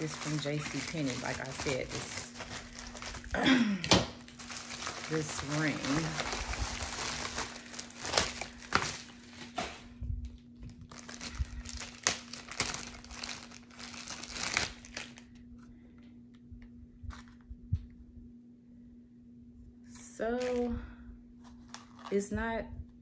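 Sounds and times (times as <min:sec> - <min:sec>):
plastic packaging crinkling: 0:00.0 - 0:09.8, 0:10.6 - 0:15.4, 0:20.4 - 0:20.7, 0:21.5 - 0:22.2
faint steady hum: 0:00.0 - 0:23.0.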